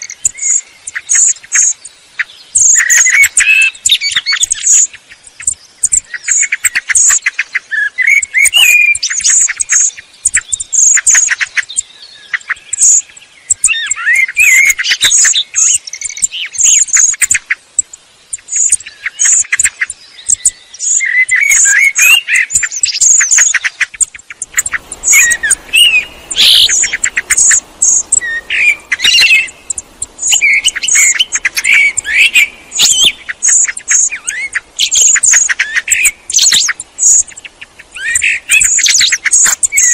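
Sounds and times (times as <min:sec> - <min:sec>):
faint background hiss: 0:00.0 - 0:39.9.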